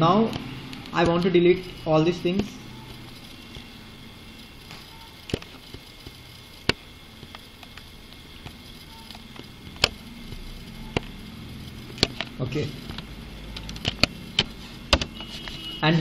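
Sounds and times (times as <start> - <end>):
computer mouse clicks: 0.2 - 1.7, 4.6 - 15.2.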